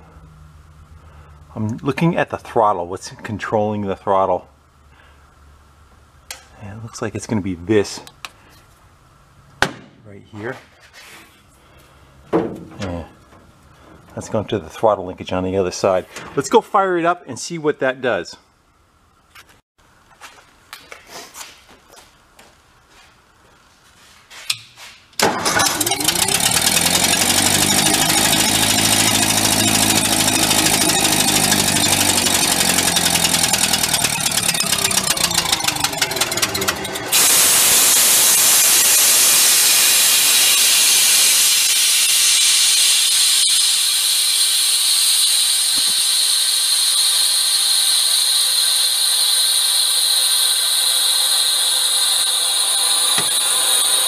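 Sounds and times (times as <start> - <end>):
gasoline engine idling: 25.3 - 39.4.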